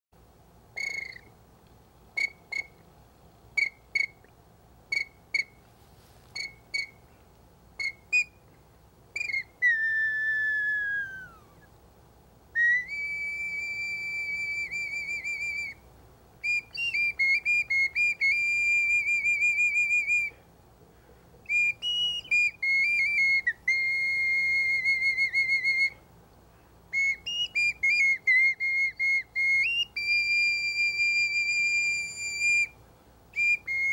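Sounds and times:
bird flute chirps and trills: 0.8s - 1.3s, 2.2s - 2.8s, 7.8s - 8.4s, 9.2s - 11.7s, 27.0s - 32.8s, 33.4s - 33.9s.

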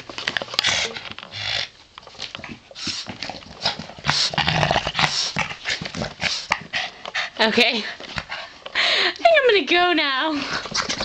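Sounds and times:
dog play growling: 0.6s - 8.5s, 10.4s - 11.0s.

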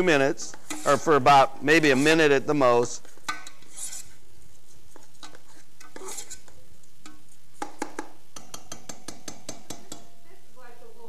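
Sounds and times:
utensil scraping a pot: 0.4s - 7.5s
sharp knocks on a pan: 7.0s - 10.2s.

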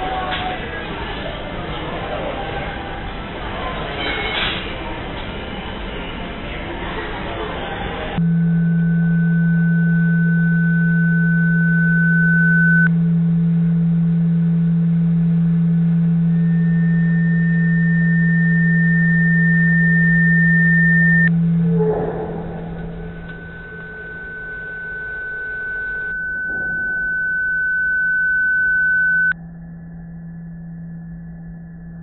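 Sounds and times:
electronic hum: 8.2s - 32.0s
high whistling tone: 9.1s - 12.9s, 16.3s - 21.3s, 23.3s - 29.4s
higher whistling tone: 16.3s - 21.3s, 26.1s - 29.4s.

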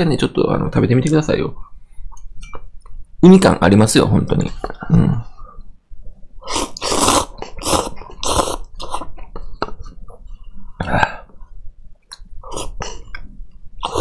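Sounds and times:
person slurping noodles: 6.4s - 9.1s, 12.4s - 13.2s, 13.8s - 14.0s.

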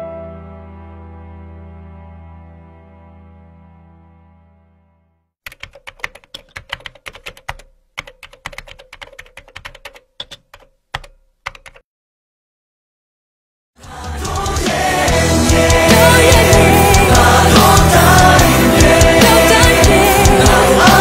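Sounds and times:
keyboard typing: 5.4s - 11.8s, 13.8s - 21.0s.

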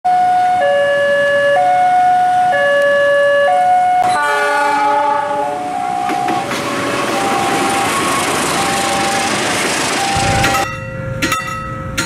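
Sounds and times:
level crossing two-tone siren: 0.1s - 10.7s.

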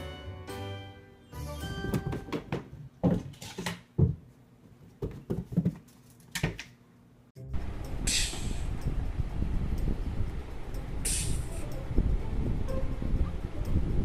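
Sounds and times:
cat paws thumping on carpeted stairs: 1.8s - 6.6s.

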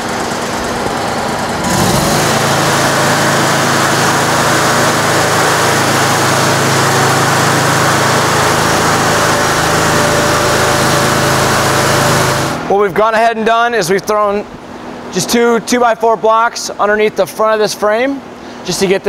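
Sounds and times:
machine engine running: 0.0s - 12.8s.

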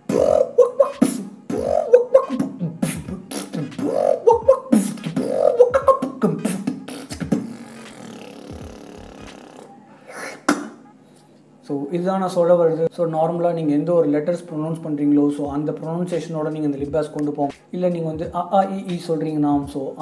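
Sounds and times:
beatboxed lip bass: 0.0s - 10.8s, 15.4s - 19.8s.

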